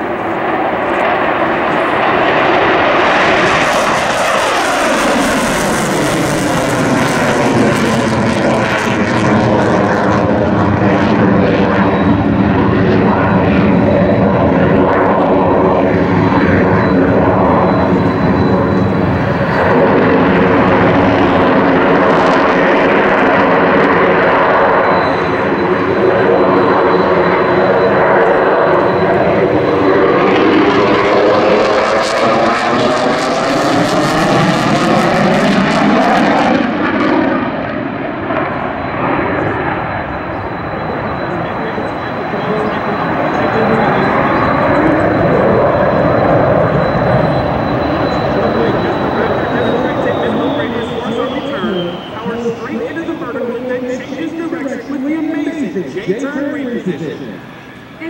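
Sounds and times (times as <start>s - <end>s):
jet engines roaring: 0.0s - 58.0s.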